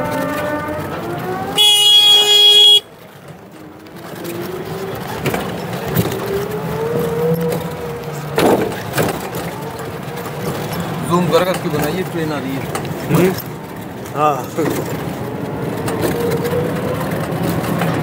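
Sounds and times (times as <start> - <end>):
vehicle horn: 0.0 - 3.0
rickshaw motor whine: 0.0 - 18.0
knocks and rattles: 3.0 - 18.0.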